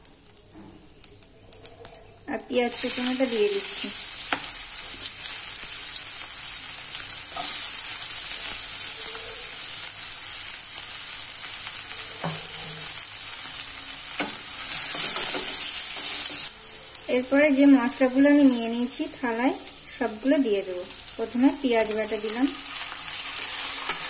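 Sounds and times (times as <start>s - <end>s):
onion sizzling in hot oil: 0.0s - 24.0s
spatula tapping a pan: 4.3s - 4.5s, 12.2s - 12.6s.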